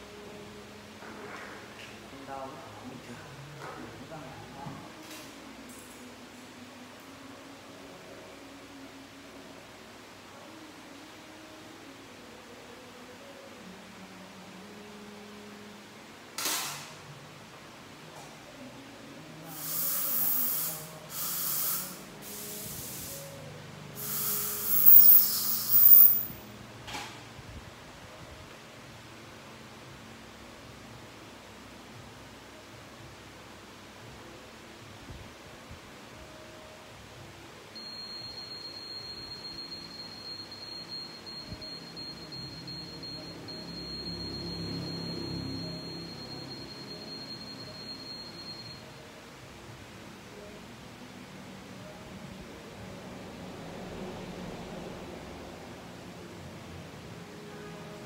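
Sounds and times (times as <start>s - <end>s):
dental air syringe hissing: 19.5s - 23.3s, 24.0s - 26.3s.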